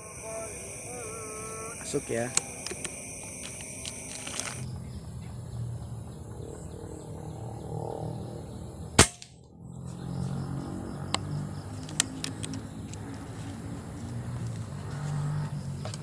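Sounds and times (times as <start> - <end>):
air rifle shot crack: 9.0 - 9.3.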